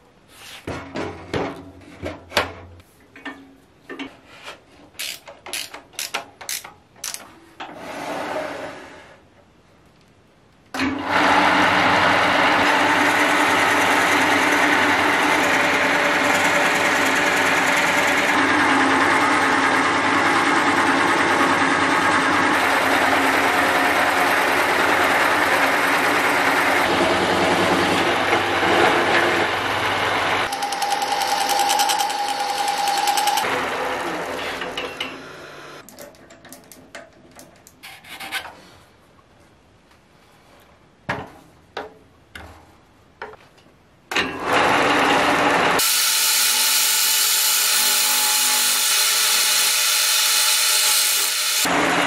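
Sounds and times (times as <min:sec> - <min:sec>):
wood lathe drilling: 0:11.1 - 0:20.0, 0:22.5 - 0:29.5, 0:30.2 - 0:34.4, 0:44.6 - 0:51.8.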